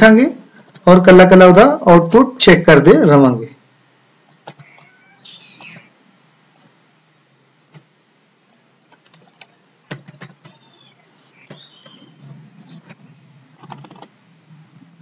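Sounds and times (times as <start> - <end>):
keyboard typing: 4.4 - 4.9, 5.6 - 5.9, 8.9 - 13.0, 13.6 - 14.1.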